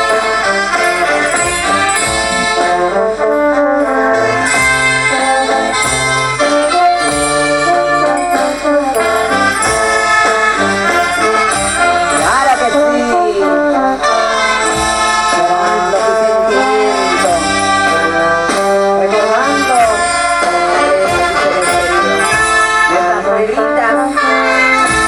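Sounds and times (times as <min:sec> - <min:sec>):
brass band playing dance music: 0:00.0 - 0:25.0
sliding brass notes: 0:00.0 - 0:25.0.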